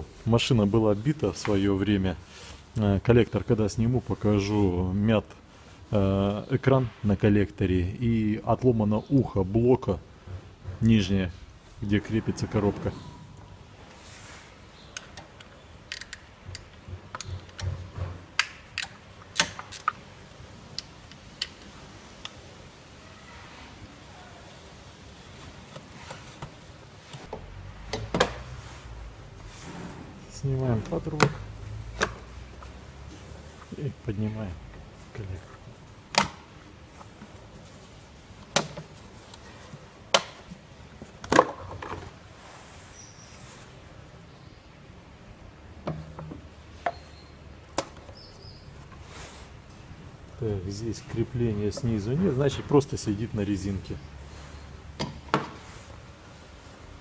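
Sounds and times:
hand tools clicking and knocking: 14.9s - 20.0s, 38.4s - 39.4s, 40.1s - 42.1s.

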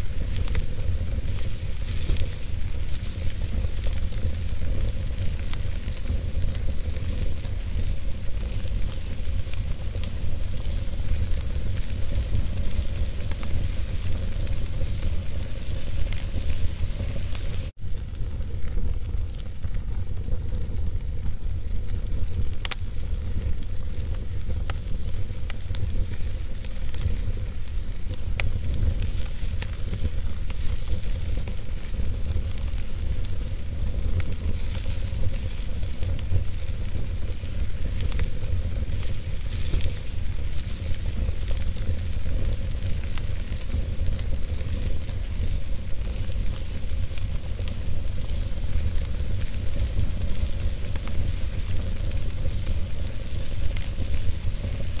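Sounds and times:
fire rumbling: 0.0s - 55.0s
logs crackling and popping: 0.0s - 55.0s.

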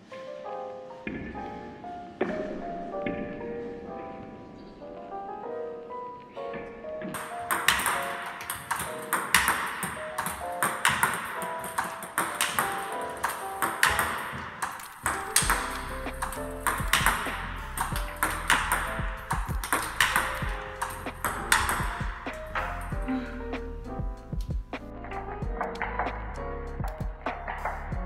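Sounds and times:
table tennis ball clicks: 7.2s - 22.9s
light marimba-like music: 15.3s - 28.0s.

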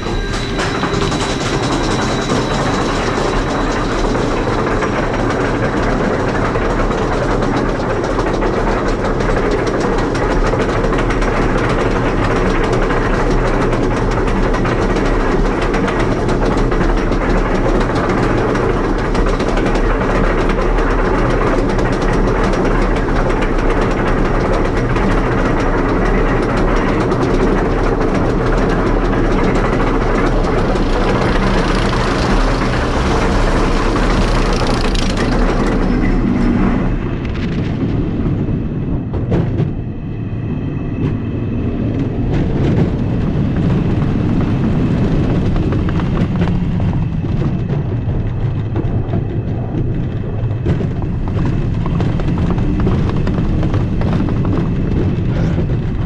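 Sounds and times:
lift chain clanking rattle: 0.0s - 36.8s
anti-rollback clicking: 0.0s - 37.3s
wheels rumbling on track: 0.0s - 56.0s.

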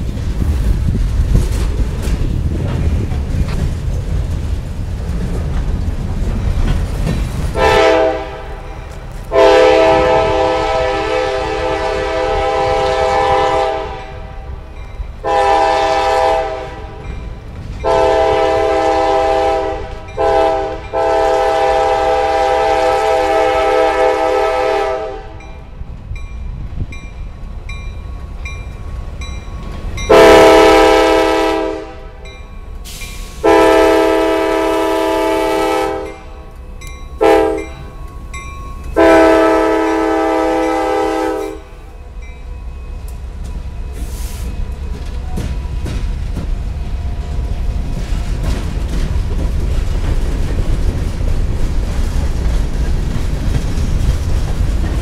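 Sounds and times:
low rumble of train: 0.0s - 55.0s
locomotive air horn blasts: 7.6s - 8.7s, 9.3s - 14.5s, 15.2s - 17.0s, 17.8s - 25.5s, 30.1s - 32.2s, 32.9s - 36.5s, 37.2s - 37.8s, 39.0s - 41.8s
crossing bell dinging: 14.0s - 15.3s, 16.9s - 18.3s, 20.0s - 21.2s, 25.4s - 30.8s, 32.1s - 33.4s, 36.0s - 46.0s.

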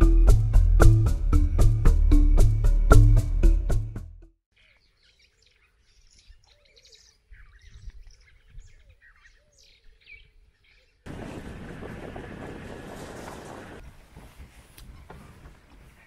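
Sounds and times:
birds chirping and whistling: 4.6s - 11.3s
moving vehicle noise: 11.1s - 14.0s.

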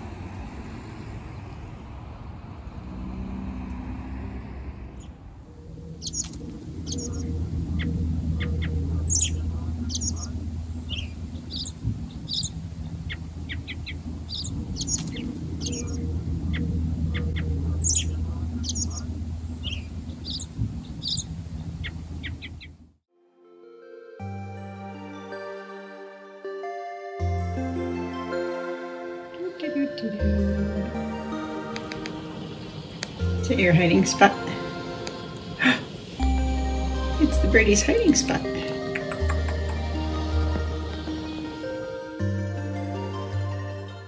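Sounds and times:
low steady hum: 0.0s - 22.9s
songbirds chirping: 0.0s - 23.0s, 26.6s - 44.0s.

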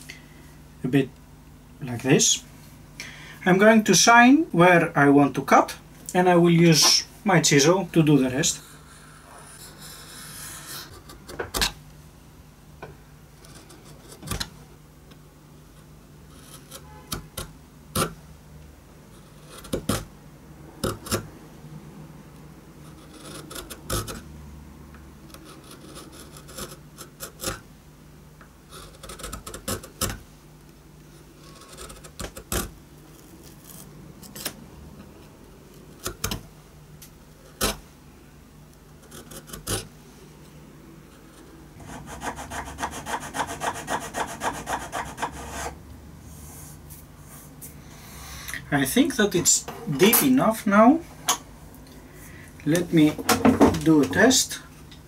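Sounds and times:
chisel cracking and scraping wood: 19.5s - 20.1s, 28.7s - 30.2s, 31.4s - 34.6s, 39.0s - 39.9s.

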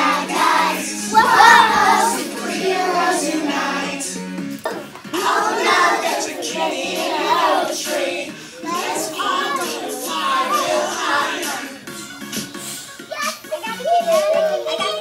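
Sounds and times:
children singing: 0.0s - 11.9s.

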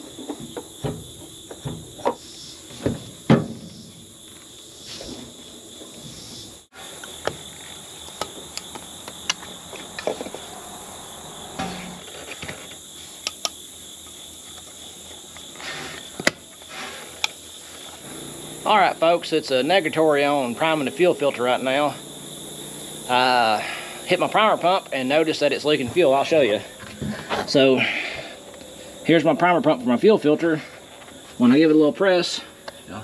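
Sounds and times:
insect chorus: 0.0s - 33.0s.

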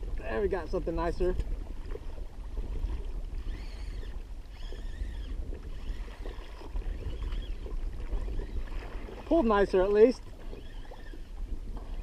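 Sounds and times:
water slapping against hull: 0.0s - 12.0s
wind buffeting microphone: 0.0s - 12.0s.

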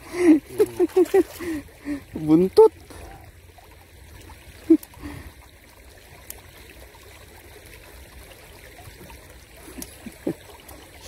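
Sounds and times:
water trickling over rocks: 0.0s - 11.0s.

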